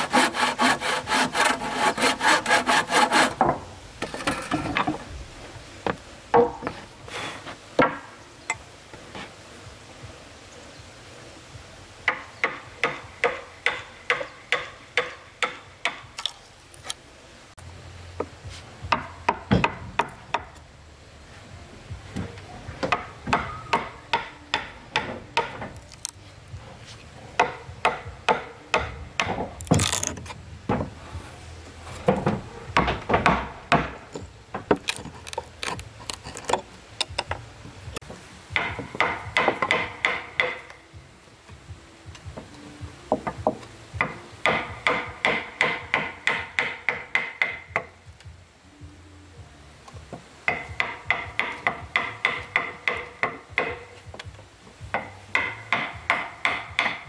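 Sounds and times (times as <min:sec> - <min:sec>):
hammer striking wood: 0:12.1 - 0:16.1, 0:18.9 - 0:20.5, 0:22.8 - 0:25.8, 0:27.4 - 0:30.0, 0:32.1 - 0:34.8, 0:38.6 - 0:40.7, 0:43.1 - 0:47.9, 0:50.5 - 0:53.8, 0:54.9 - 0:57.0.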